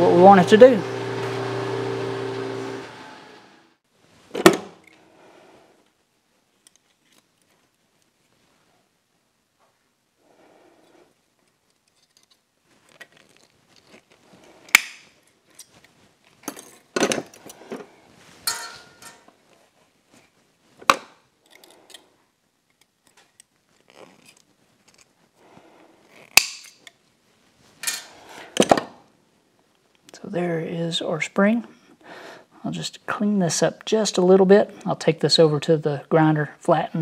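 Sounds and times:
metal tools clinking in drawer: 0:16.4 - 0:17.5, 0:18.4 - 0:19.3, 0:27.8 - 0:28.2.

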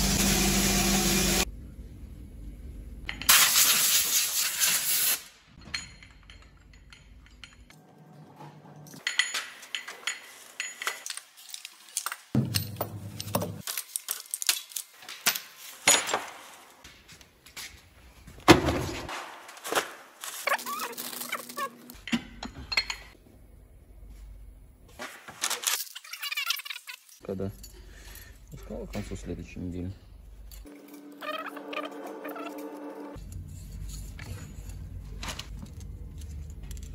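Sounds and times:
metal pistons clinking and knocking: 0:05.6 - 0:16.2, 0:21.9 - 0:23.2.

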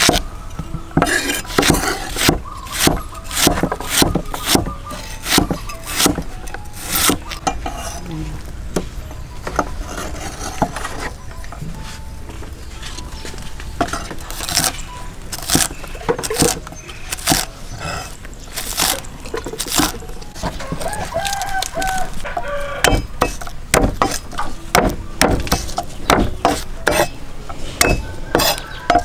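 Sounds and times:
cleaver chopping on wooden block: 0:00.0 - 0:00.2, 0:01.0 - 0:06.3, 0:22.8 - 0:27.1, 0:27.8 - 0:29.0
chicken calling: 0:19.7 - 0:23.2, 0:28.0 - 0:29.0.

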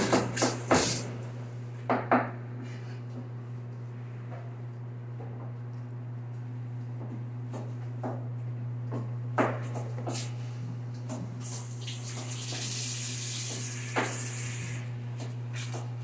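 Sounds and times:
steady low hum: 0:00.0 - 0:16.0
water running from a tap: 0:11.4 - 0:14.8.

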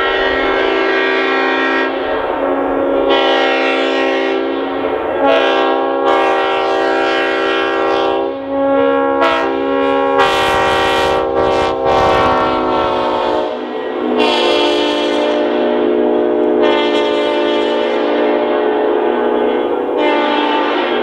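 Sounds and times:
air horn chord: 0:00.0 - 0:21.0
rush of noise: 0:10.3 - 0:14.2.

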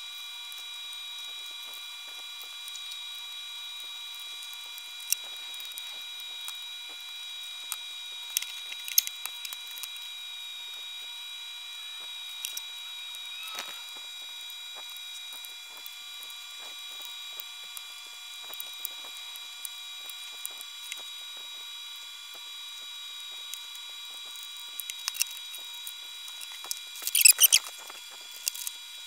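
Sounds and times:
high-pitched whine: 0:11.5 - 0:15.4
small clicks and taps: 0:24.2 - 0:28.7.

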